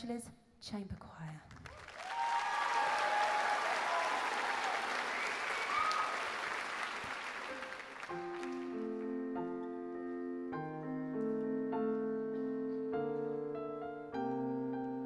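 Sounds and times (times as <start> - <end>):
audience applauding: 1.5 - 9.2
piano slow sustained chords: 7.5 - 15.0.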